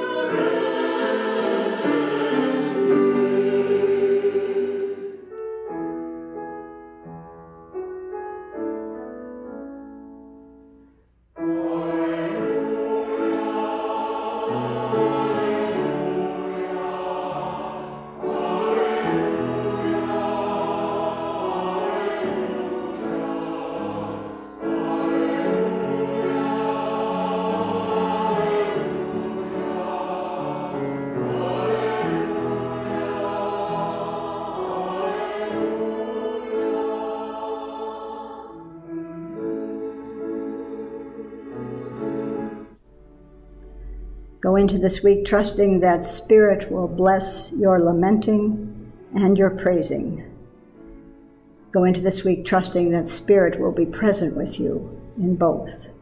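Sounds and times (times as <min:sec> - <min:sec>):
choir singing with accompaniment: 0:00.0 - 0:05.4, 0:11.4 - 0:42.8.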